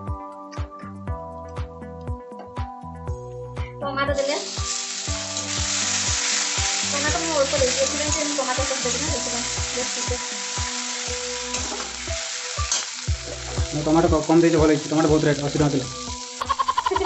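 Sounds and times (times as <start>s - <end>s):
vegetables sizzling in hot oil: 4.2s - 17.0s.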